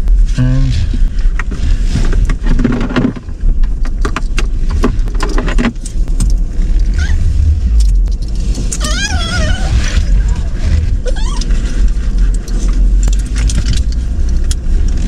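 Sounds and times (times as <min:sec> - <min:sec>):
low road rumble: 0:00.0 - 0:15.0
light clicks and rattles: 0:10.2 - 0:15.0.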